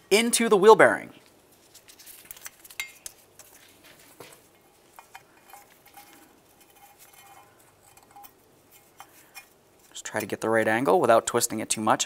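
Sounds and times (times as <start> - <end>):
faint light clicks and scrapes: 1.2 - 10.4.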